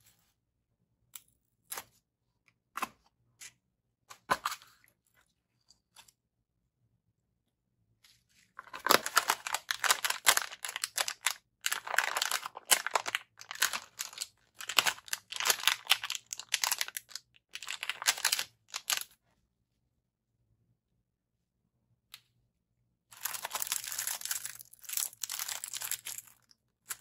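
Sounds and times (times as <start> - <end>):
packaging crinkling and tearing: 8.6 - 19.1, 23.2 - 27.0.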